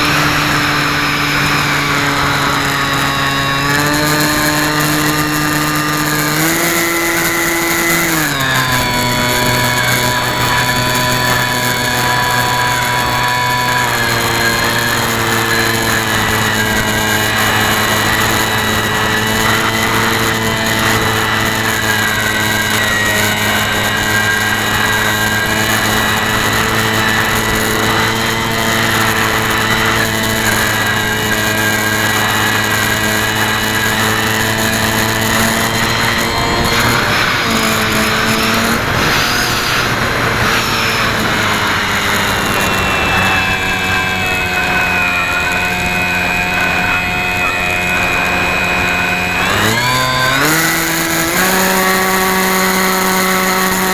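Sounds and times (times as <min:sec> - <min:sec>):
model airplane motor and propeller: 0:00.0 - 0:53.9
air rushing: 0:35.5 - 0:46.9.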